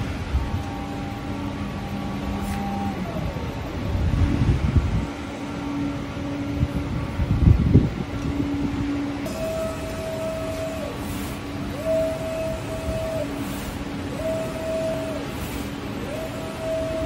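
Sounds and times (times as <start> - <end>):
factory machinery humming: 0.0 - 17.0
low rumbling swells: 3.4 - 9.2.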